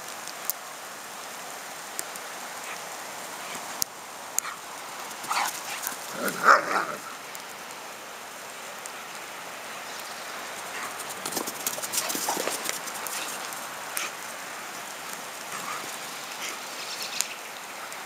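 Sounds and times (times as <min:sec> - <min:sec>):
hail pattering: 0:03.4 - 0:07.5, 0:09.9 - 0:18.0
dogs scuffling: 0:05.0 - 0:06.4, 0:10.7 - 0:14.2
dog barks: 0:05.2 - 0:07.1.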